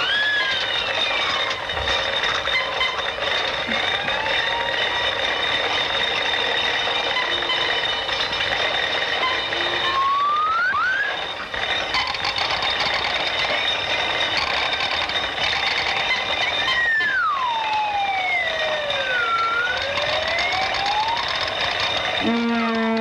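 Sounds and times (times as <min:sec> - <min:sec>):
steady whirring noise: 0:00.0 - 0:23.0
high steady tone: 0:03.6 - 0:11.5
whistle-like pitch glides: 0:09.3 - 0:11.2, 0:16.6 - 0:21.4.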